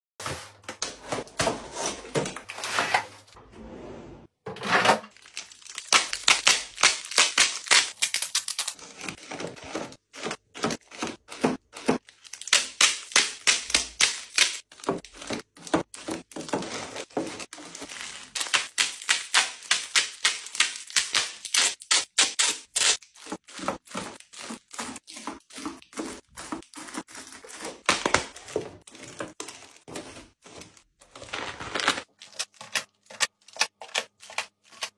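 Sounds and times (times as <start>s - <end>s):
crinkling plastic wrappers: 5.1s - 9.3s, 12.0s - 24.5s, 28.0s - 34.9s
packaging rustling and tearing: 5.1s - 9.8s, 14.0s - 24.9s, 26.6s - 34.9s.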